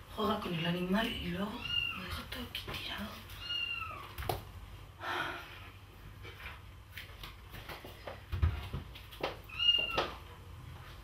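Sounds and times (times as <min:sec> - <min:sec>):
kitten meowing: 0:01.6 - 0:02.2, 0:03.4 - 0:04.2, 0:09.5 - 0:10.1.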